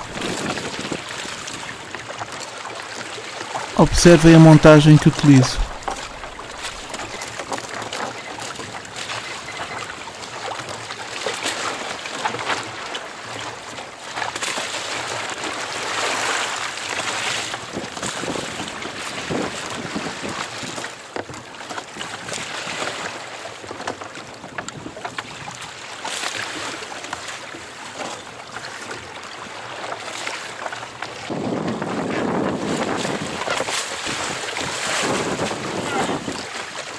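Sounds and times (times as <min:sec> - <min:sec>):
wind buffeting microphone: 0:00.0 - 0:01.2, 0:31.3 - 0:36.5
water splashing against boat hull: 0:00.0 - 0:09.2, 0:10.0 - 0:36.9.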